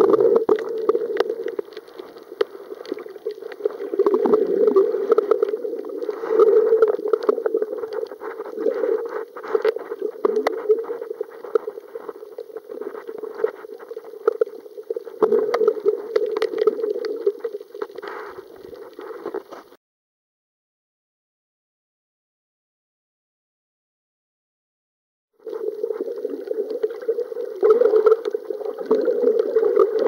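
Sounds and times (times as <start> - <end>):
underwater gurgling and sloshing: 0.0 - 19.8, 25.4 - 30.0.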